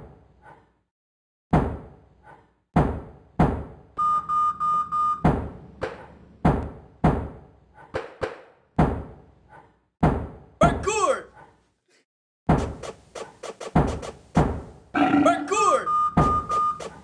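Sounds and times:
sharp knocks and thunks beat: 1.5 - 2.0, 2.8 - 3.8, 5.2 - 9.2, 10.0 - 10.5, 12.5 - 14.8, 16.2 - 16.9
quick electronic beeps: 15.0 - 17.0.

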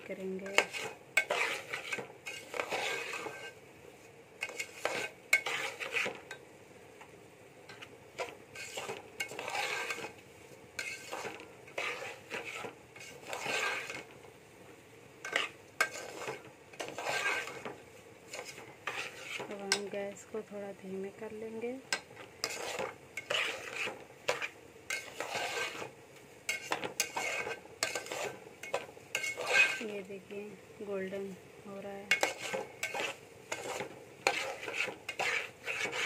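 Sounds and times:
semolina frying: 0.0 - 36.0
spoon stirring and scraping pot: 0.1 - 6.5, 7.7 - 14.3, 15.2 - 20.3, 21.2 - 30.1, 32.0 - 36.0.

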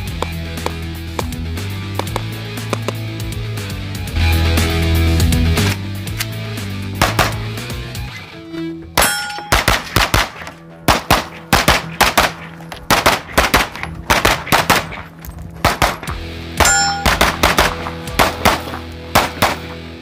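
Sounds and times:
rapid gunfire: 7.0 - 7.6, 9.5 - 19.8
steel target ringing: 9.0 - 10.0, 10.8 - 18.9.

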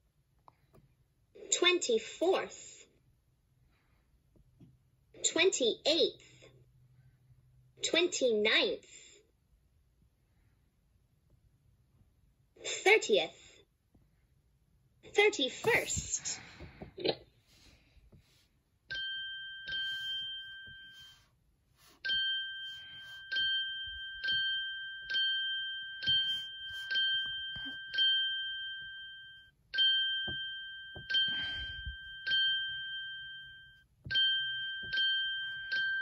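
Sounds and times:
bright ding chime: 22.1 - 36.0.

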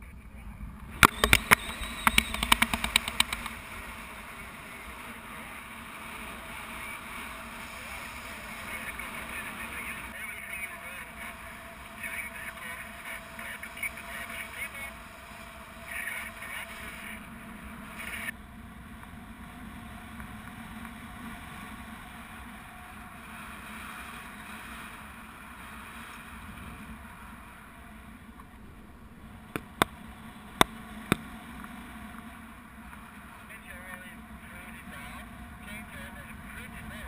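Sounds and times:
sharp clicks: 1.0 - 3.6.

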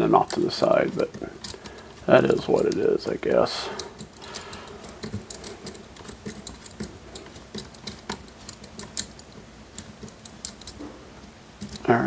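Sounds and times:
hex key clicking on screw: 3.8 - 10.8.

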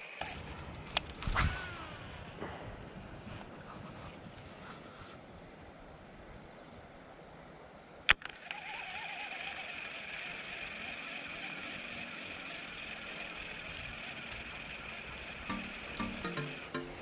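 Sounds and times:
fishing reel whirring: 8.4 - 15.5.

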